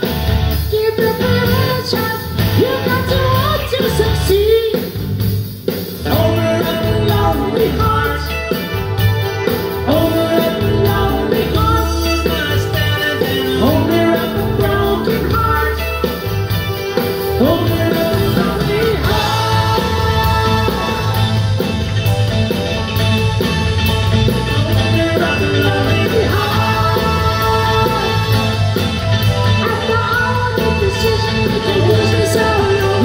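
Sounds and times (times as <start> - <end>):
live rock band playing: 0.0 - 33.0
woman singing lead: 0.5 - 5.0, 17.0 - 21.7, 24.6 - 33.0.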